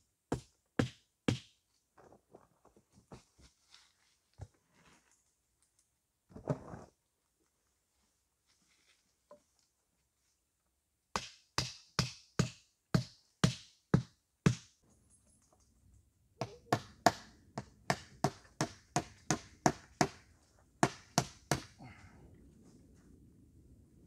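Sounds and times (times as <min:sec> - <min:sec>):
hammering on wood: 0:00.3 - 0:01.5, 0:11.2 - 0:14.7, 0:16.4 - 0:20.2, 0:20.8 - 0:21.8.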